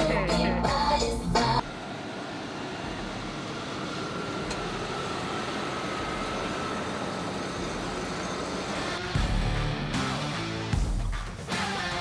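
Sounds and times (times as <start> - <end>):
truck engine driving past: 1.6 - 10.7.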